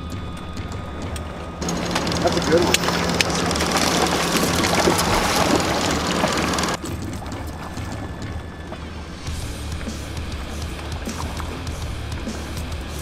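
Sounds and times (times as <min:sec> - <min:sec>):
wind: 0:00.0 - 0:13.0
water rushing: 0:01.6 - 0:09.4
outboard motor running: 0:01.6 - 0:12.6.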